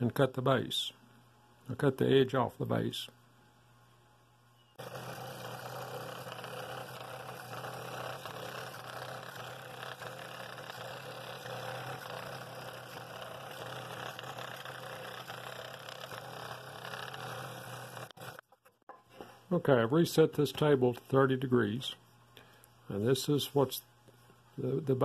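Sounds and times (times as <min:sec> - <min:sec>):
scroll saw cutting wood: 0:04.8 - 0:18.4.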